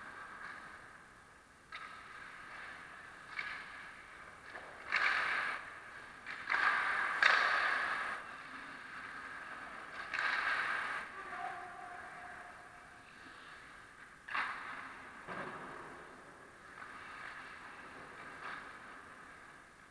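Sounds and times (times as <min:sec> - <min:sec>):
skate blades scraping ice: 0:01.7 - 0:11.8.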